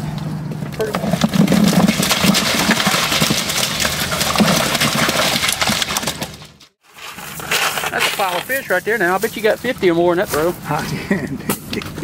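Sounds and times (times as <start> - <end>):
fish flopping and slapping: 0.8 - 8.5.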